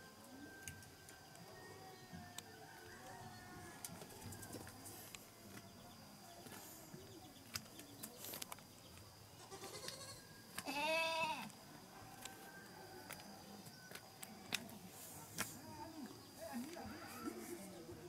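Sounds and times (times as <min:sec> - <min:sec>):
goat bleating: 0:09.4 - 0:11.5.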